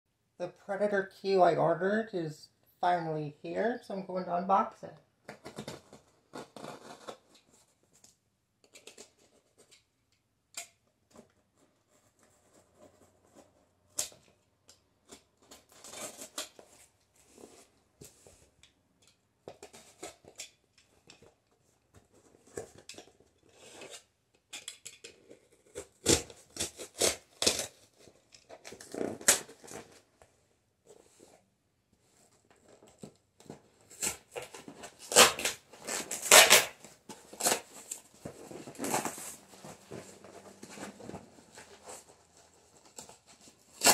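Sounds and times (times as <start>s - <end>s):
tape tearing: 5.3s - 9.8s, 12.5s - 18.2s, 22.2s - 30.1s, 32.5s - 43.9s
cardboard scraping and rustling: 5.4s - 8.0s, 32.0s - 43.9s
box cutter slicing cardboard: 25.6s - 27.8s.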